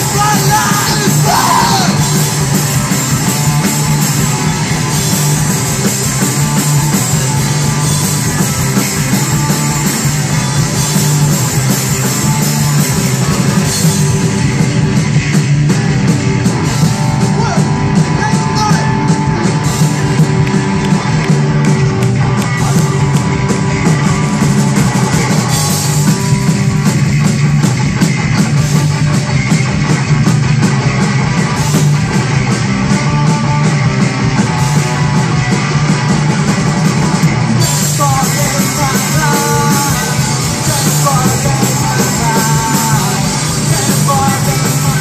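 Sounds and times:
person yelling singing: 0.0 - 2.2, 37.8 - 45.0
rock band playing loud: 0.0 - 45.0.

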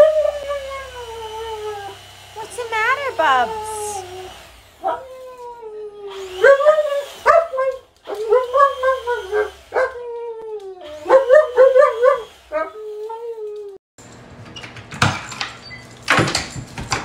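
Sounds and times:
dog howling whines: 0.0 - 2.0, 3.4 - 13.8.

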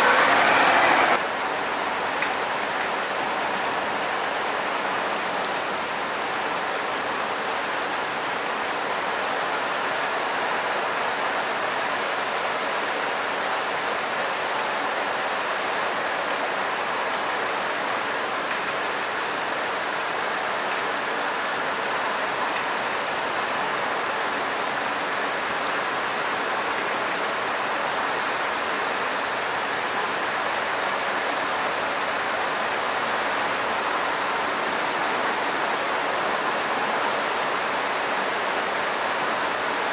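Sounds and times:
rain hissing on water: 0.0 - 39.9.

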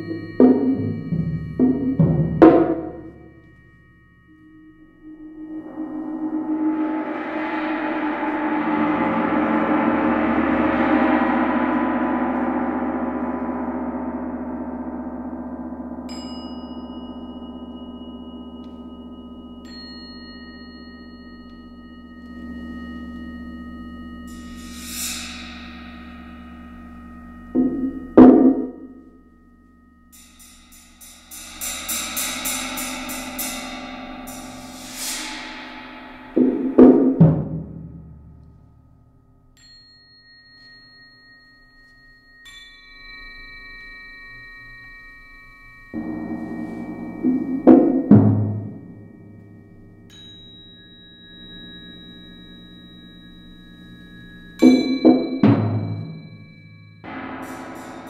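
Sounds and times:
high shimmering swells: 0.0 - 38.6, 42.7 - 55.1, 55.9 - 58.0
ringing metallic tones: 0.0 - 58.0
drum roll into heavy strikes: 0.1 - 3.2, 5.6 - 16.1, 27.6 - 28.9, 36.0 - 38.4, 46.0 - 49.4, 54.6 - 56.2, 57.1 - 58.0.

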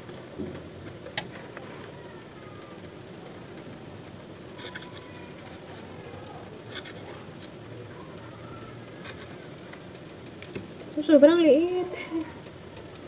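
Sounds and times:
steady background hiss: 0.0 - 13.0
clicks and rustles of cutting stems: 4.5 - 7.6, 8.9 - 11.0.

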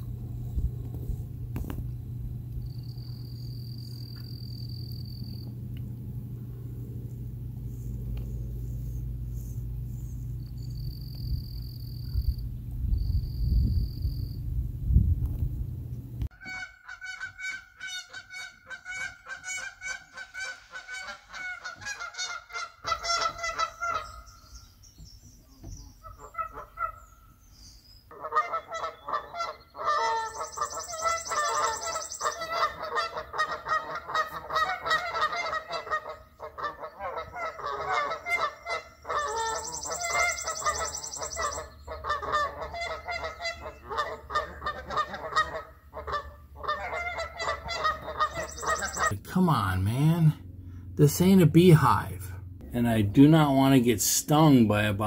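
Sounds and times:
geese honking: 16.3 - 24.7, 25.9 - 27.4, 28.1 - 54.9.

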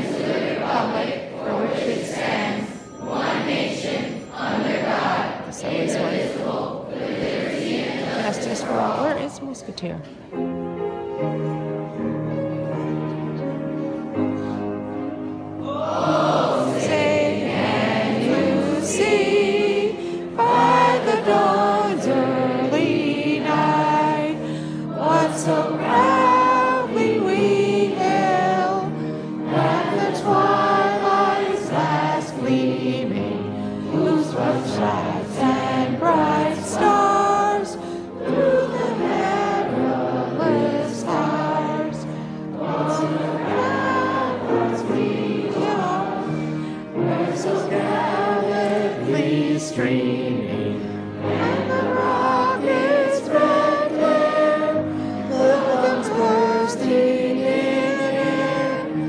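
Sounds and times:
group singing: 0.0 - 9.3, 15.6 - 59.0
instrumental accompaniment chords: 8.9 - 49.4.

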